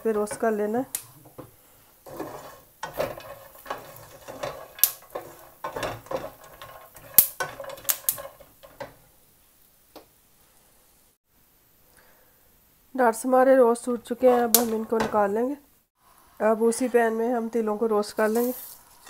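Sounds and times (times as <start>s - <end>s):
nuts scraping and rattling in pan: 0.0s - 9.1s, 13.8s - 15.4s
nuts clicking against pan: 2.1s - 9.0s, 14.3s - 15.2s.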